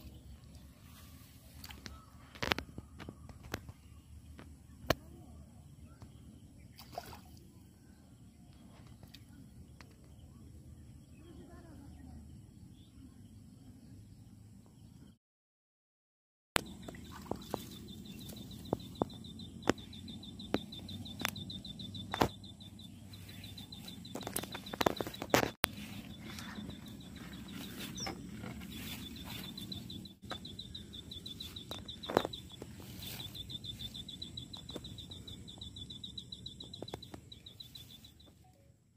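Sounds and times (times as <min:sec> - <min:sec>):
small animal chirping trill: 0:18.1 - 0:38.3
sharp clicks and knocks: 0:18.6 - 0:22.5, 0:23.6 - 0:25.8.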